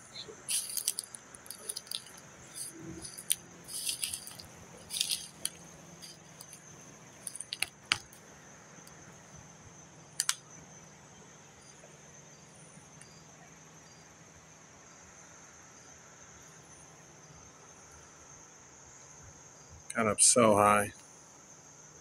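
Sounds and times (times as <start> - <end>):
twigs snapping underfoot: 0.5 - 6.6, 7.2 - 8.2, 10.2 - 10.4.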